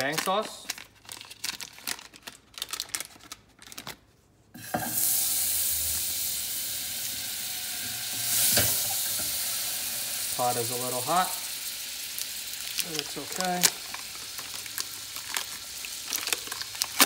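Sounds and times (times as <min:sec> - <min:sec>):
butter sizzling in a hot pot: 0:04.6 - 0:17.0.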